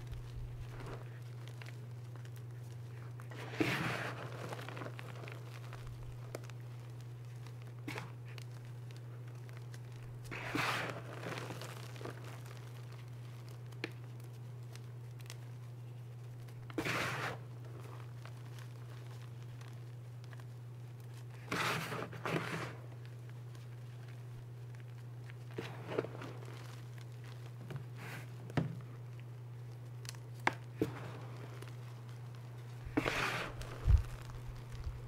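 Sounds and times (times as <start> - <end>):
chalk crunching and grating: 0.0 - 8.6, 9.9 - 13.2, 16.6 - 19.3, 21.2 - 23.1, 32.6 - 35.0
steady low hum: 0.0 - 35.0.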